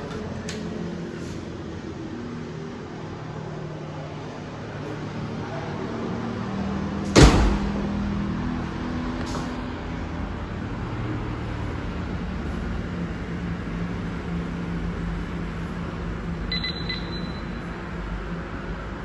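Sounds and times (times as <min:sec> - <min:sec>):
door lock keypad beep: 0:16.5 - 0:17.6.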